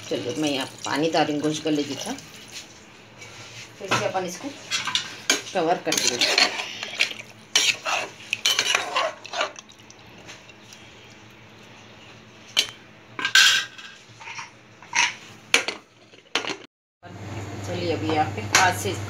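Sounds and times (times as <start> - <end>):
spoon scraping metal pot: 4.6 - 9.6.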